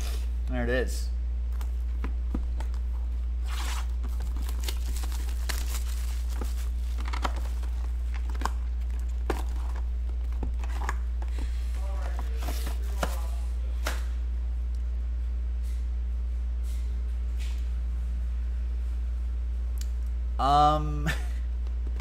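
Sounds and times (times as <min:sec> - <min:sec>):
steady low hum: 0:00.0 - 0:22.0
plastic wrap tearing and crinkling: 0:03.4 - 0:09.8.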